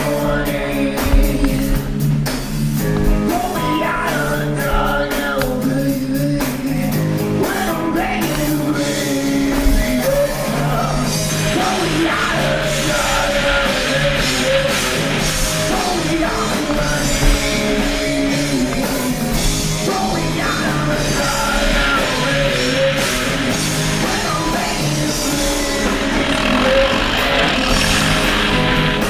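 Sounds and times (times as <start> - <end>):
rock music with singing: 0.0 - 29.0.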